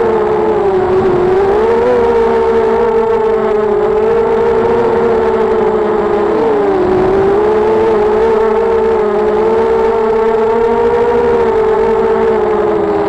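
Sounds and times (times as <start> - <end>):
drone motors whining: 0.0 - 13.0.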